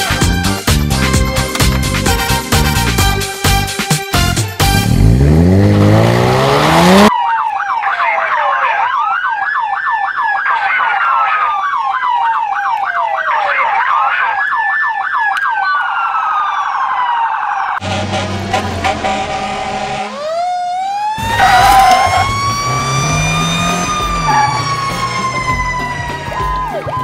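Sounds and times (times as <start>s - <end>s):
engine revving: 4.3s - 7.1s, 17.8s - 20.2s, 21.2s - 26.4s
wailing siren: 5.2s - 27.0s
yelp siren: 5.8s - 17.8s, 19.8s - 27.0s.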